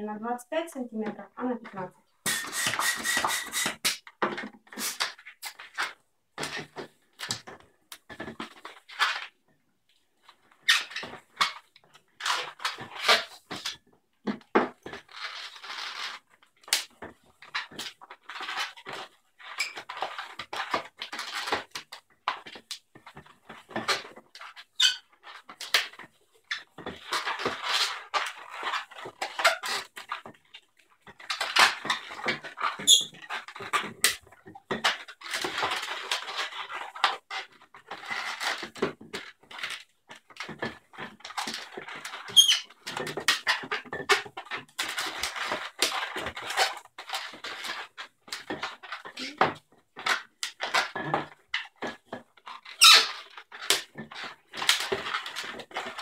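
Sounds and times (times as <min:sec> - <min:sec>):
balloon rubber squeaking: 0:02.2 - 0:04.0, 0:04.7 - 0:05.6, 0:10.6 - 0:11.1, 0:24.4 - 0:25.4, 0:32.6 - 0:33.3, 0:42.2 - 0:42.8, 0:52.6 - 0:53.4.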